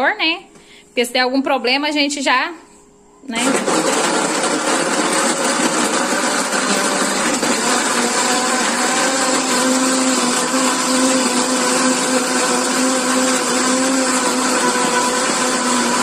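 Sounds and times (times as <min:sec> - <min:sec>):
blender motor blending ice: 0:03.3 - 0:16.0.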